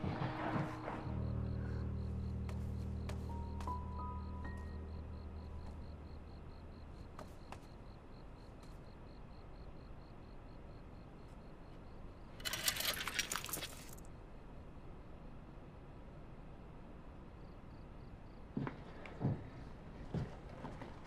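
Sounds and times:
metal keys jingling: 0:12.4 - 0:14.0.

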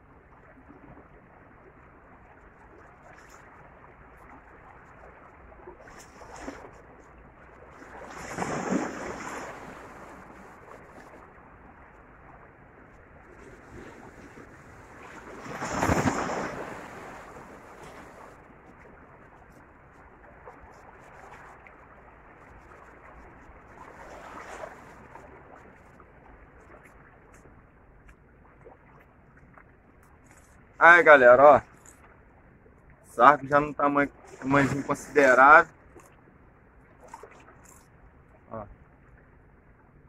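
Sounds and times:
sea waves washing against rocks: 0:07.7 - 0:11.2, 0:13.3 - 0:19.0, 0:33.1 - 0:35.7.

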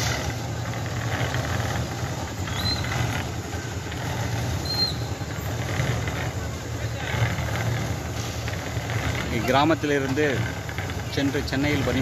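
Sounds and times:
construction machinery engine droning: 0:00.0 - 0:12.0
high squeaks: 0:02.2 - 0:06.5.

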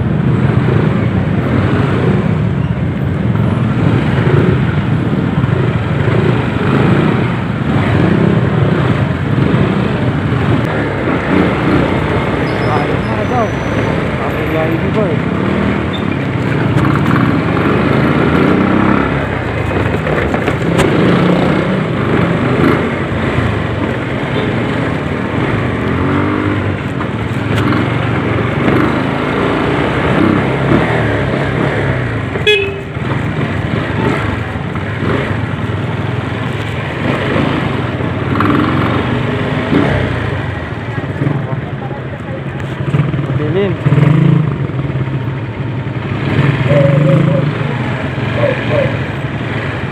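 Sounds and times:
passing vehicles: 0:00.0 - 0:49.9
road and wind noise: 0:00.0 - 0:49.9
motorcycle engine running: 0:13.9 - 0:49.9
vehicle horns: 0:32.4 - 0:33.1.

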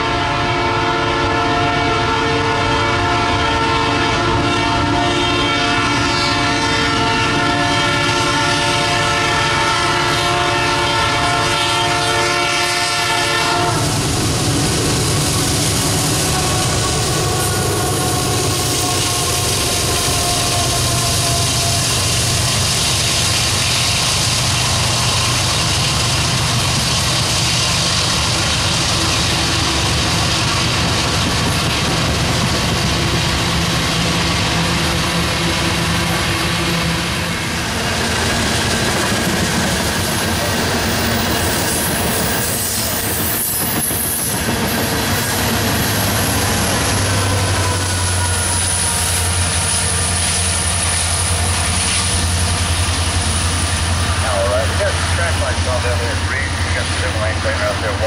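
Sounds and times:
locomotive air horn blast: 0:00.0 - 0:14.1, 0:15.4 - 0:22.8, 0:46.0 - 0:52.6
train wheels on rails: 0:05.9 - 0:58.0
locomotives passing at speed: 0:11.9 - 0:58.0.

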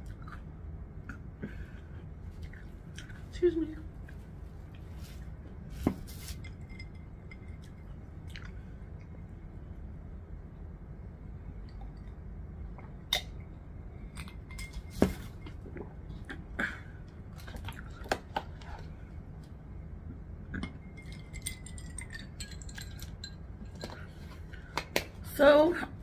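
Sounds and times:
glass and bottle clinking: 0:06.3 - 0:07.8, 0:14.2 - 0:15.5, 0:20.6 - 0:24.1.

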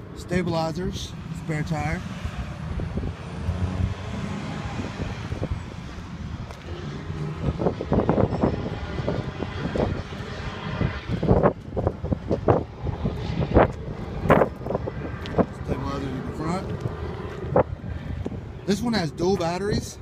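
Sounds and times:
wind buffeting microphone: 0:00.0 - 0:20.0
footsteps on gravel: 0:05.3 - 0:07.3, 0:13.2 - 0:18.4.

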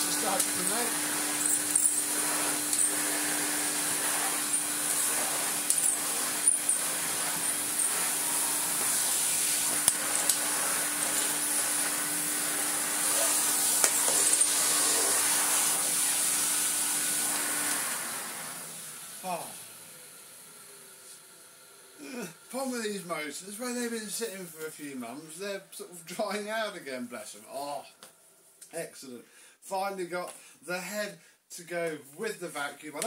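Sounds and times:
vacuum cleaner running: 0:00.0 - 0:23.0.

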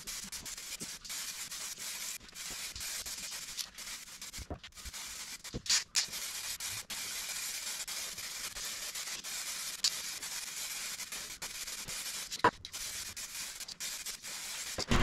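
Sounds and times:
aerosol spray can hissing: 0:00.0 - 0:15.0.

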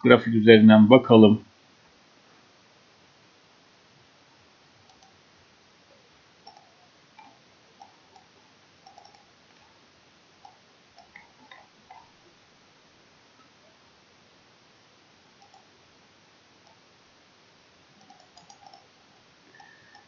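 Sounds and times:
faint steady hiss: 0:00.0 - 0:20.0
computer mouse clicking: 0:04.8 - 0:05.2, 0:06.4 - 0:09.7, 0:10.4 - 0:12.2, 0:15.3 - 0:15.7, 0:18.0 - 0:18.9, 0:19.5 - 0:20.0.

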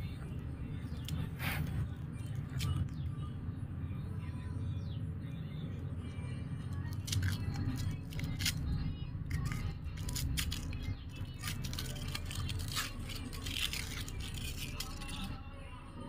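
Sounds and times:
foil wrapper crinkling and tearing: 0:06.9 - 0:08.6, 0:09.4 - 0:15.3.

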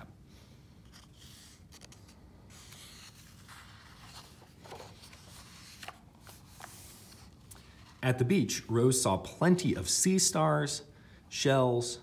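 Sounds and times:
book pages turning: 0:00.8 - 0:08.1.

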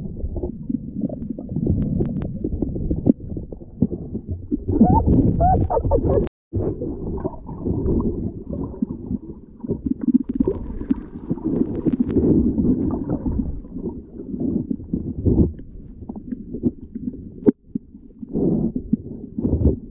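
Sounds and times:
underwater churning and gurgling: 0:00.0 - 0:19.9
faint underwater clicks: 0:00.4 - 0:03.2, 0:09.6 - 0:19.9.

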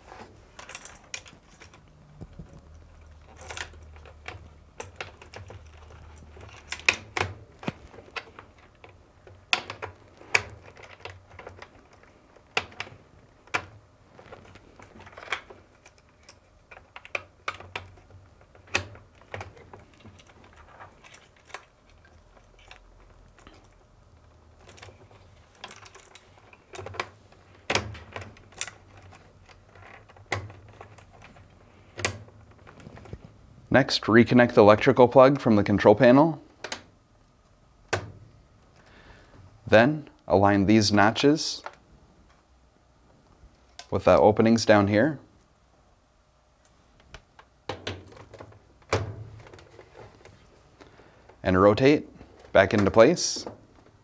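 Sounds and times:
wires rattling on plastic housing: 0:00.5 - 0:33.4.

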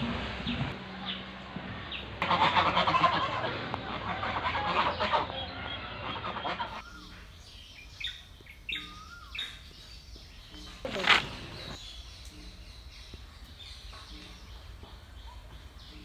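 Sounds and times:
chickens clucking: 0:00.0 - 0:07.3
bird calls and chirps: 0:04.7 - 0:16.0.

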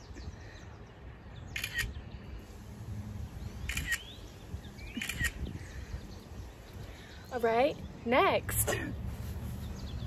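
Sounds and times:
camera shutter clicking: 0:01.6 - 0:02.0, 0:03.7 - 0:04.1, 0:05.0 - 0:05.4.

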